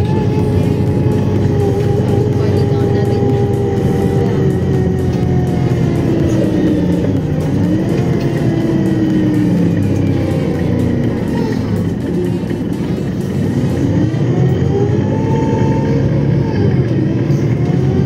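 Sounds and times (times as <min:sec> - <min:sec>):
bus engine rumble: 0:00.0 - 0:18.0
drivetrain whine: 0:00.0 - 0:18.0.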